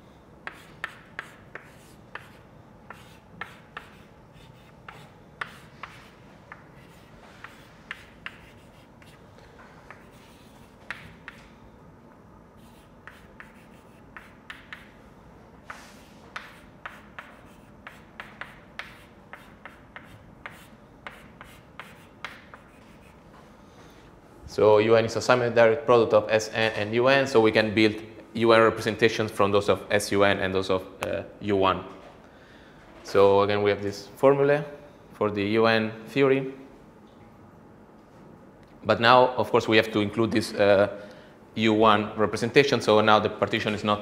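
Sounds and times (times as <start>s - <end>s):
chalk tapping and scratching: 0.4s - 9.2s, 9.8s - 11.5s, 12.6s - 15.0s, 15.6s - 23.2s.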